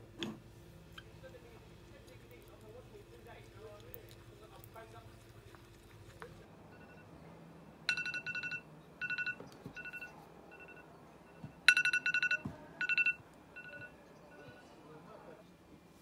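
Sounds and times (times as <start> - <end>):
timer alarm beeping: 7.9 - 14.6.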